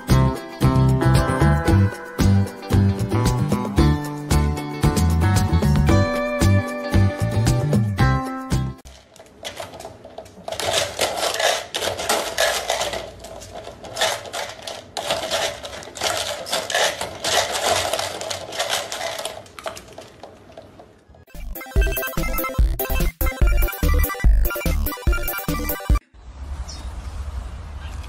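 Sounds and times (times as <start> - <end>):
kibble rattling in a plastic cup: 8.8 - 20.6.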